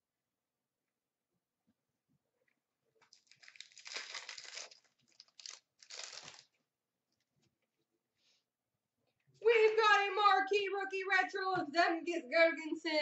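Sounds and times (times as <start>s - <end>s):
card pack wrapper crinkling: 3.0s - 6.6s.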